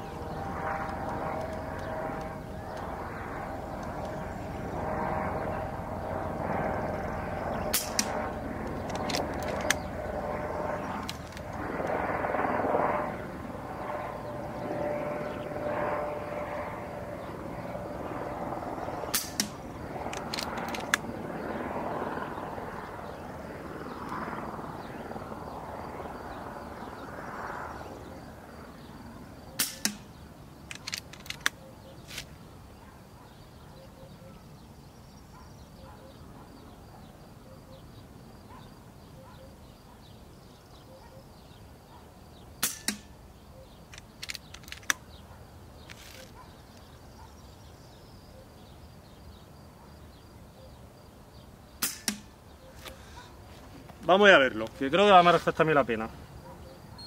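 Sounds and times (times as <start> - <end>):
outdoor background noise: 0.0 - 57.0
silenced air pistol shots: 7.7 - 9.9, 19.1 - 19.6, 29.5 - 30.2, 42.6 - 43.2, 51.8 - 53.0.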